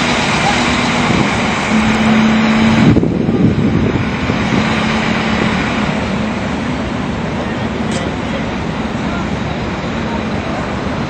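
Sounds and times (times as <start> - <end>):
loud engine drone: 0.0 - 11.0
low hum: 1.6 - 7.9.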